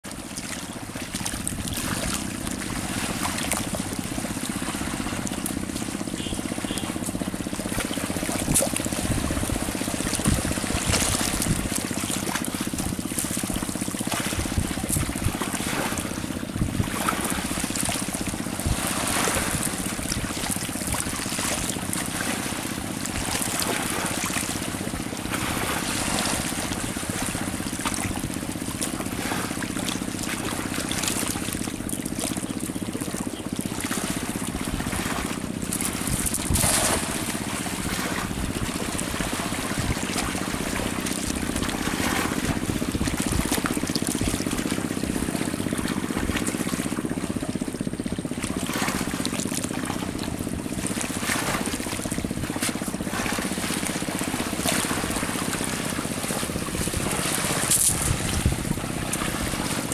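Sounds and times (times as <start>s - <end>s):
river water lapping on bank: 0.0s - 59.9s.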